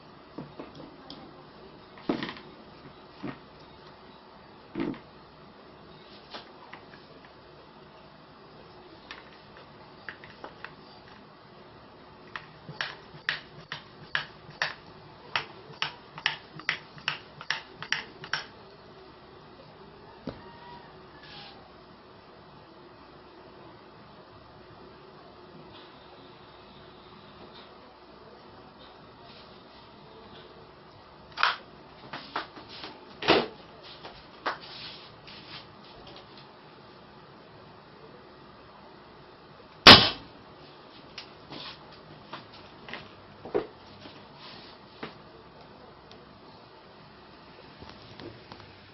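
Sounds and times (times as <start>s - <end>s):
scattered clicks: 12.3s - 18.6s.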